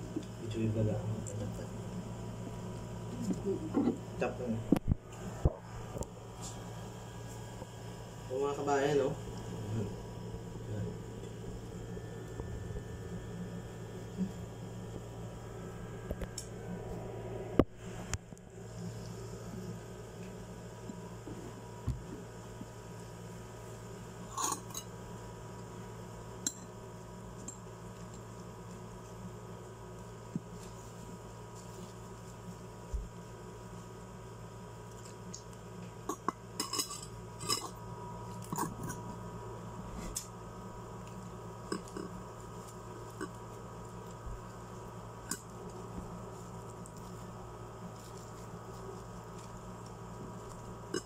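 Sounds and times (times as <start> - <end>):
quiet eating sounds: 0.0 - 7.8, 34.6 - 51.0
low room hum: 0.0 - 51.0.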